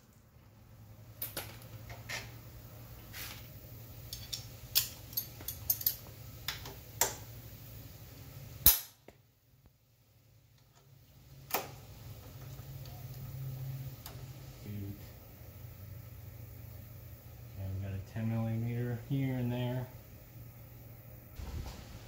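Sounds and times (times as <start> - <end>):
metal tools clinking on metal: 4.1 - 6.1.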